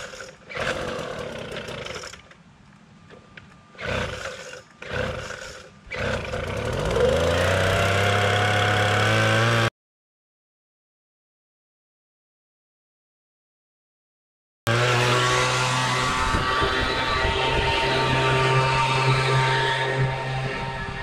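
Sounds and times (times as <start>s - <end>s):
engine starting and running: 0.0s - 2.4s, 3.7s - 9.7s, 14.7s - 21.0s.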